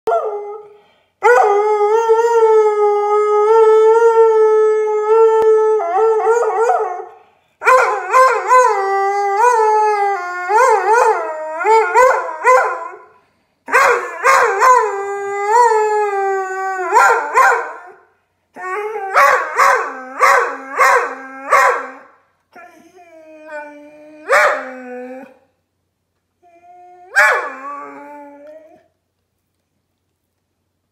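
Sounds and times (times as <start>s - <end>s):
dog howling: 1.3s - 13.0s, 22.6s - 25.4s, 26.4s - 28.9s.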